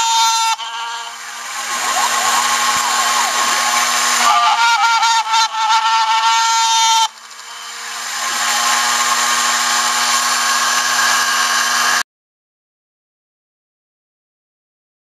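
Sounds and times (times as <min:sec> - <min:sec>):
high-pitched machine whine: 0:00.0 - 0:12.0
mill cutting board: 0:00.0 - 0:12.0.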